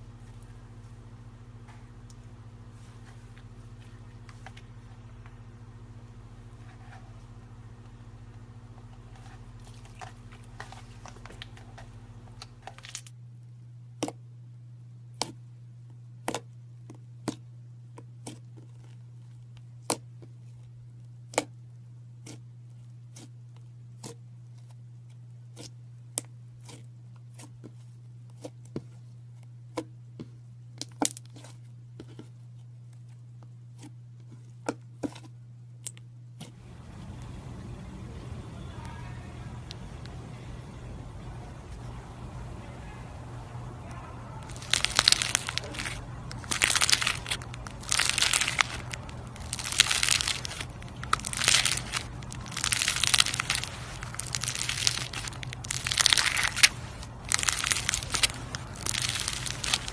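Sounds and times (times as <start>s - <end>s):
slime crackling: 8.3s - 13.1s, 44.4s - 59.9s
low hum: 36.5s - 59.9s.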